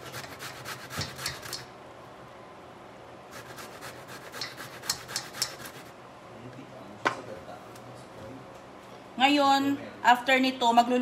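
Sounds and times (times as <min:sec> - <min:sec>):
root grated on metal grater: 0:00.0 - 0:01.7, 0:03.4 - 0:05.9.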